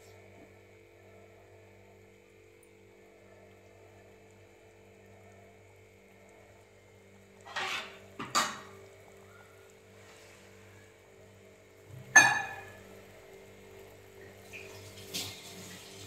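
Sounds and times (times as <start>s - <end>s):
faint steady hum: 0.0s - 16.0s
metal ladle scraping a pot: 7.4s - 8.6s.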